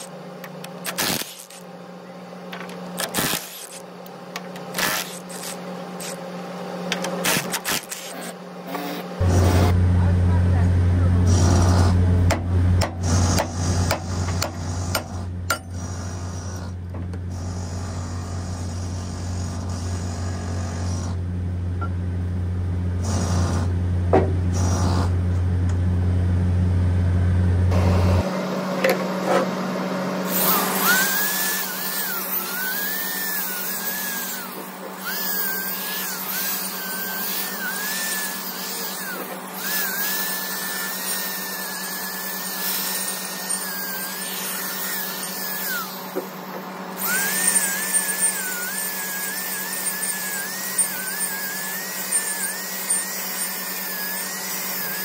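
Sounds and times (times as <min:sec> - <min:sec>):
angle grinder wire brush whine: 0:00.0 - 0:21.9, 0:22.9 - 0:26.0, 0:27.0 - 0:55.0
low hum: 0:00.0 - 0:28.8.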